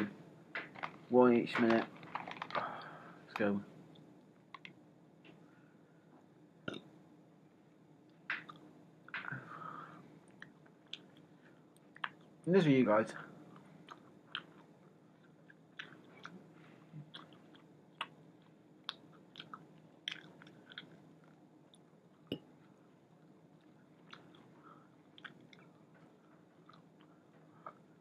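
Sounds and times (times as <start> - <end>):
person chewing: 10.3 - 12.4, 13.5 - 22.8, 23.6 - 27.9.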